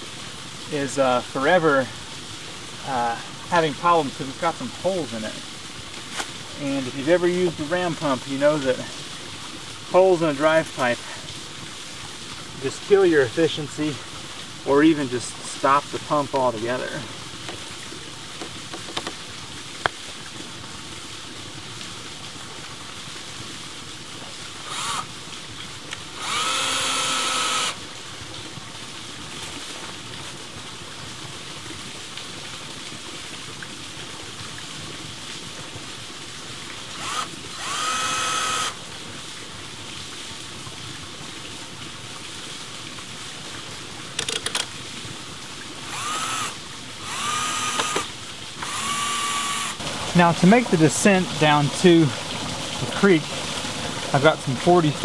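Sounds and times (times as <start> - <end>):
cordless drill whirring: 24.6 - 25.1, 26.2 - 27.8, 37.0 - 38.8, 45.9 - 49.8.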